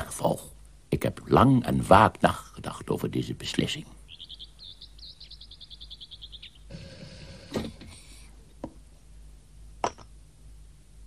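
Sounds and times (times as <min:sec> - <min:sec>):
bird trilling: 0:04.0 - 0:07.5.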